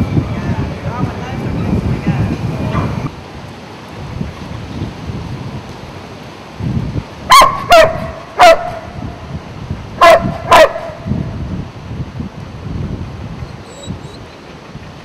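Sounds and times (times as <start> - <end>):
dog barking: 7.3 - 8.8, 10.0 - 11.0.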